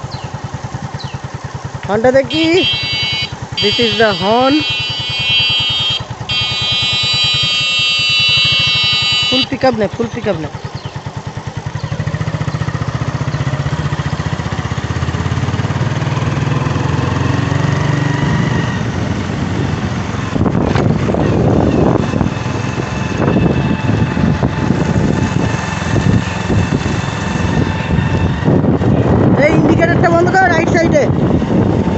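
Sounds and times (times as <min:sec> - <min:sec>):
small motorcycle engine running: 0:00.0 - 0:31.9
wind buffeting microphone: 0:09.8 - 0:31.9.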